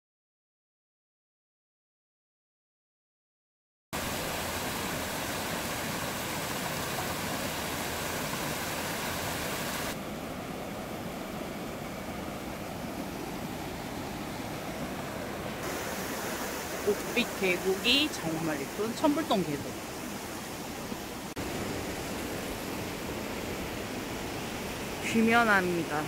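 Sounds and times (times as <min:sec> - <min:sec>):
stream water rushing over rocks: 0:04.0 - 0:10.0, 0:12.3 - 0:26.0.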